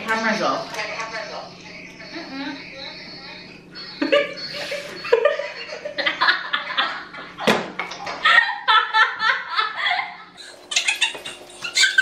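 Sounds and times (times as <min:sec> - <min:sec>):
women laughing: 0:04.0 - 0:07.5, 0:08.1 - 0:12.0.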